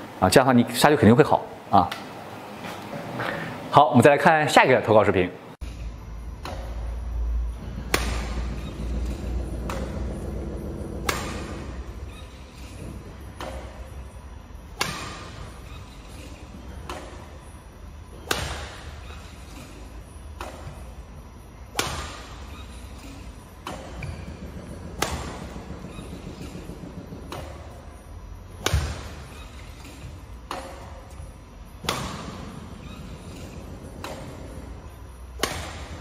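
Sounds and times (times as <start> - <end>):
badminton racket smashing shuttlecock: 35.4 - 35.9.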